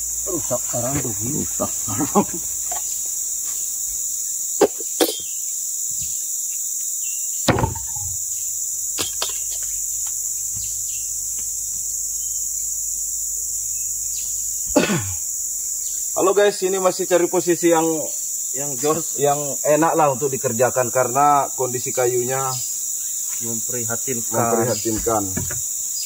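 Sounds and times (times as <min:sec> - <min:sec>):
high-pitched insect drone: 0:00.0 - 0:26.0
machete striking wood: 0:07.5 - 0:08.3.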